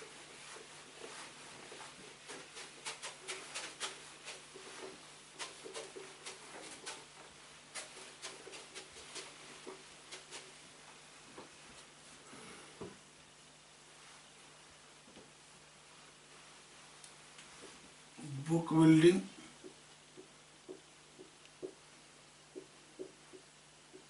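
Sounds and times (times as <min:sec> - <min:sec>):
eraser squeaking on whiteboard: 0:02.3 - 0:10.6.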